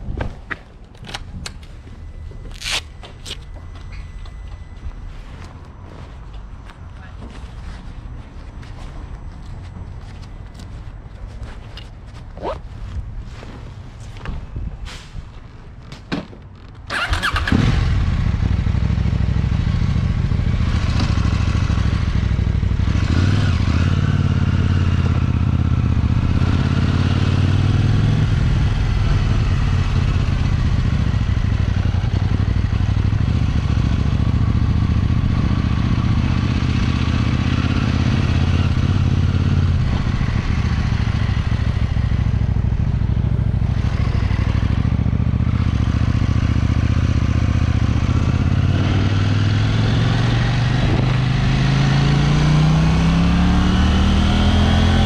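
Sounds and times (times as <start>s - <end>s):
motorcycle engine running: 16.9s - 55.0s.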